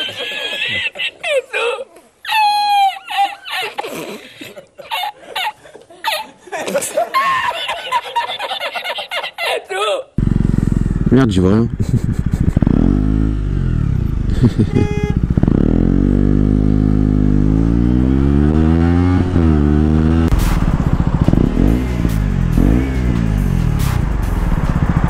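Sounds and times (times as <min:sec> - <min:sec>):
motorcycle engine revving: 0:10.2 - 0:25.0.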